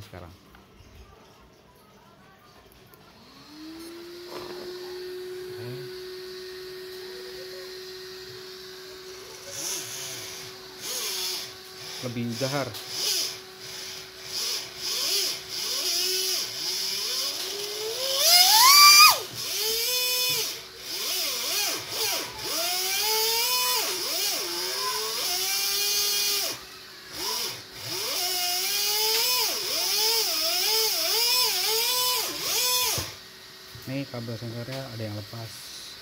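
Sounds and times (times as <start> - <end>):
electric motor whining: 3.2 - 36.0
man talking: 12.0 - 12.8, 33.8 - 36.0.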